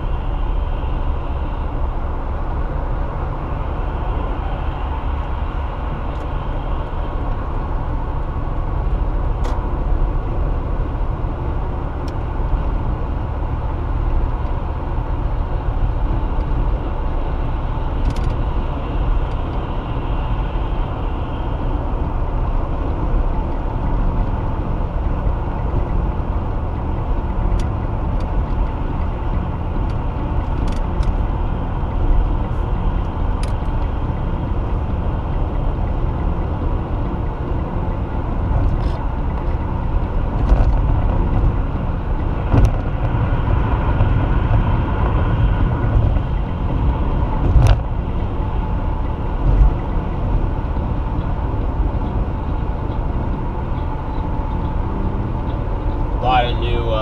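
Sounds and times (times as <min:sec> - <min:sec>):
car road noise from cabin: 0:00.0 - 0:57.0.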